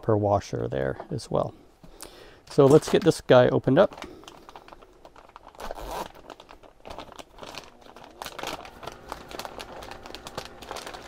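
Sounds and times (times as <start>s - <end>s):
packaging torn and crinkled: 3.8s - 11.0s.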